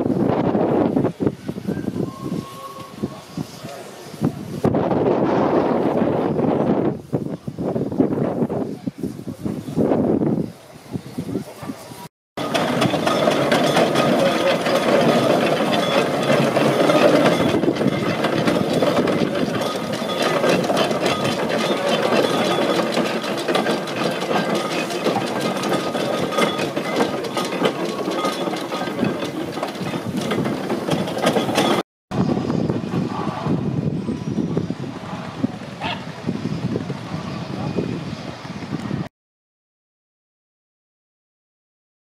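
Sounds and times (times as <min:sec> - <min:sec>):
steam roller engine beating: 0:00.0 - 0:08.0, 0:11.4 - 0:39.1
mechanical clatter: 0:12.4 - 0:31.8.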